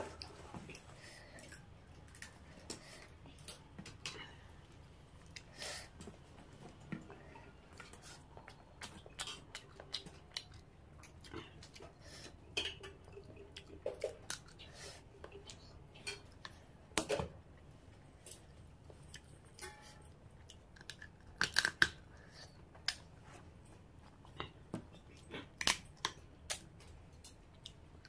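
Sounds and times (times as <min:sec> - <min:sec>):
wet chewing and mouth sounds: 0:05.2 - 0:16.6.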